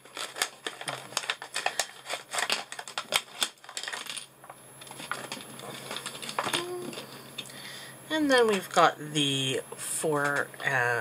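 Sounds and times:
paper pouch crinkling: 0.0 - 4.2, 4.8 - 7.2
paper rustling: 0.0 - 4.2, 4.8 - 7.2.

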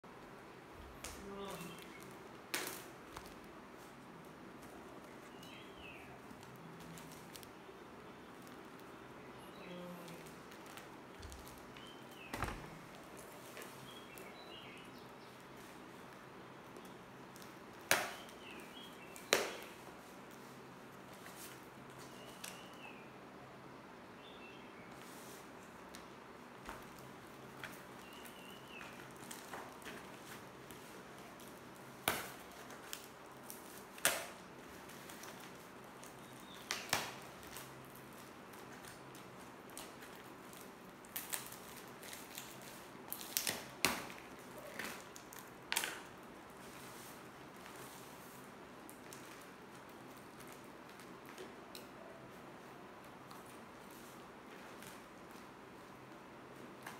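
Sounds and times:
packing tape snapping: 0.9 - 3.5, 16.7 - 20.4, 25.9 - 46.8.

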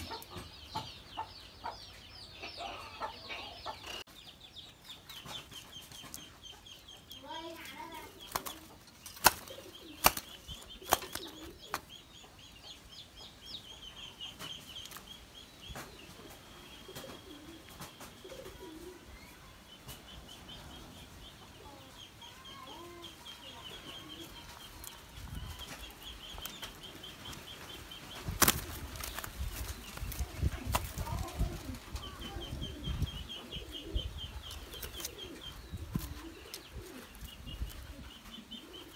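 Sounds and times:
wings flapping: 7.8 - 11.8, 28.1 - 32.6.

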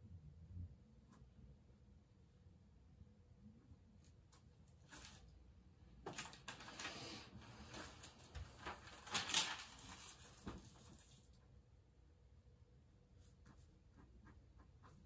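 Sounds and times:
notepad pages rustling: 4.8 - 5.4, 6.0 - 11.4.

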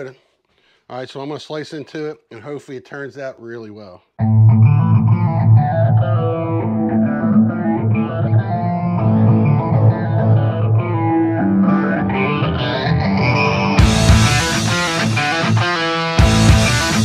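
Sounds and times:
bass: 4.2 - 17.0
distorted electric guitar: 4.2 - 17.0.

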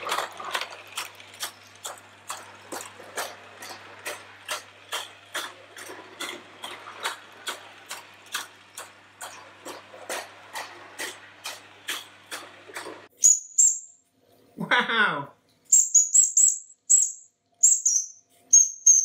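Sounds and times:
toy steam locomotive running: 0.0 - 13.1.

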